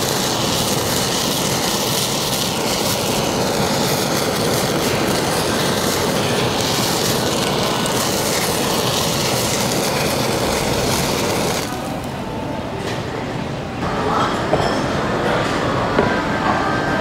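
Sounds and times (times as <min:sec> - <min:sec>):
blowtorch hissing: 0:00.0 - 0:12.2.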